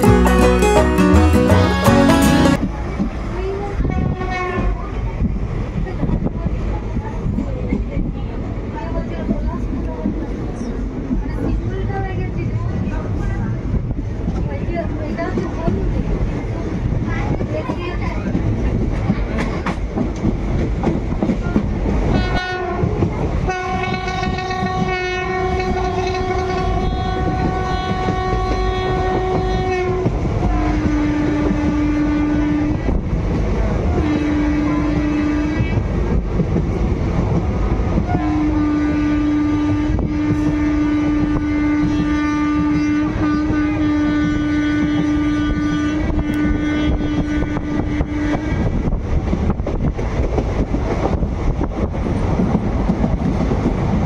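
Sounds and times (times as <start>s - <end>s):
train running noise: 0.0s - 54.0s
train horn blasts: 22.1s - 32.9s, 34.0s - 35.8s, 38.0s - 48.7s.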